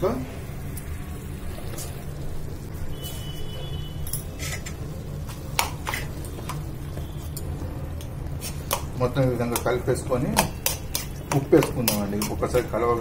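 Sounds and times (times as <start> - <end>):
spoon scraping metal pan: 4.2 - 4.8, 10.4 - 12.6.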